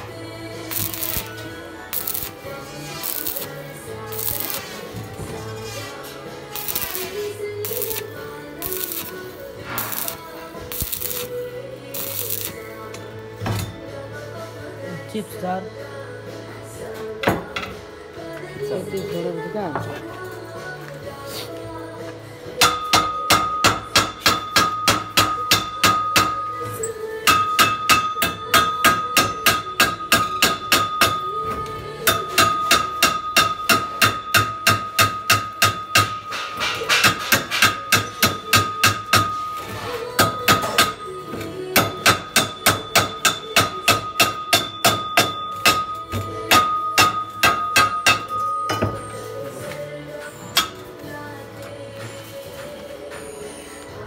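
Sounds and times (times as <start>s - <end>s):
hammer rapping on steel pipe: 0.7s - 1.3s, 1.9s - 2.3s, 3.0s - 3.5s, 4.1s - 4.8s, 6.6s - 11.3s, 12.0s - 12.6s, 27.3s - 31.2s, 32.1s - 36.2s, 36.8s - 39.4s, 40.2s - 41.0s, 41.8s - 45.9s, 46.5s - 48.4s.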